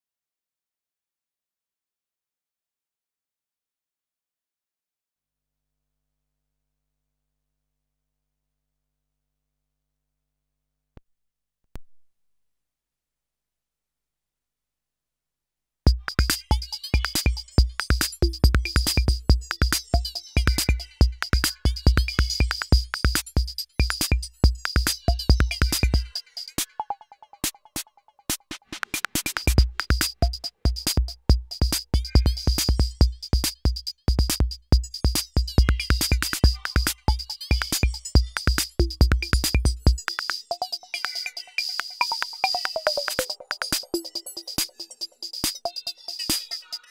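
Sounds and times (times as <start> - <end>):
fast hi-hats: 15.9 - 26.8, 28.3 - 46.9.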